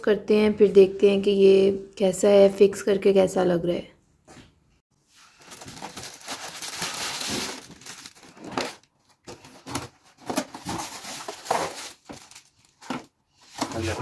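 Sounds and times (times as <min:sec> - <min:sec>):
plastic wrapping crinkling: 0:05.1 - 0:13.1.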